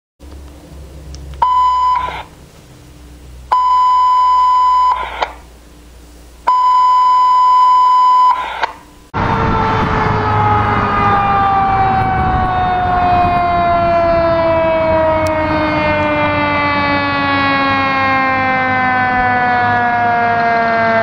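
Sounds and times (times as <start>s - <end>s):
high-pitched alert beeps: 1.4s - 2.1s
fire engine siren: 1.4s - 2.4s, 3.5s - 5.4s, 6.5s - 21.0s
radio static bursts: 1.6s - 2.4s, 4.4s - 5.5s, 8.1s - 8.8s.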